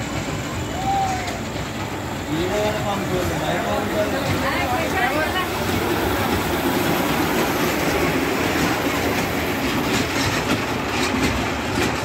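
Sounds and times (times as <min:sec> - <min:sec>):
mini train rumbling: 0:00.0 - 0:12.0
wheels clicking on track: 0:00.0 - 0:12.0.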